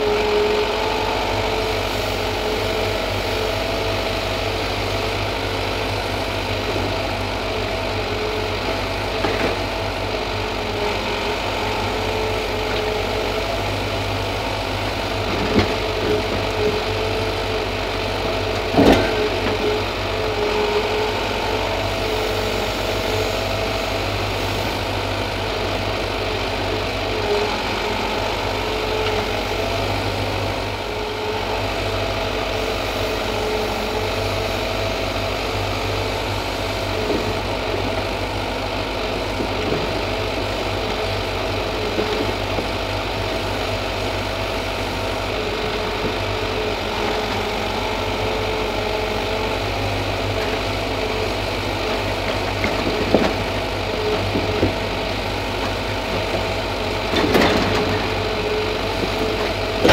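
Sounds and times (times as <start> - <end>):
diesel engine running: 0.0 - 59.9
logs knocking onto load: 18.4 - 19.7, 51.9 - 59.9.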